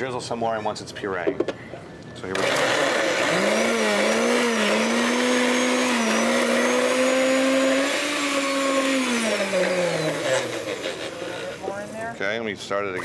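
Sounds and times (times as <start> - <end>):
blender motor running: 2.3 - 12.0.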